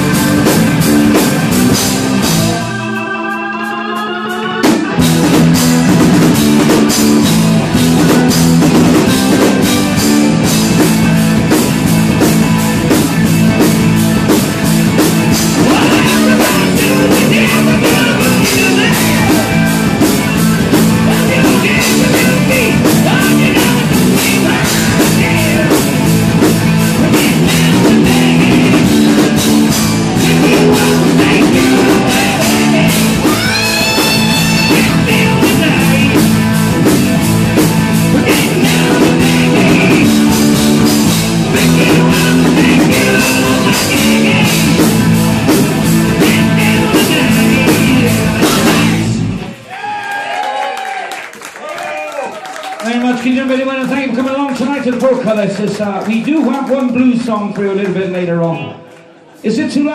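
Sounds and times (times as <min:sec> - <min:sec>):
drum kit: 0:00.0 - 0:50.0
electric guitars: 0:00.0 - 0:50.6
person singing: 0:02.3 - 0:05.6, 0:15.4 - 0:36.6, 0:37.6 - 0:45.2, 0:45.9 - 0:49.2.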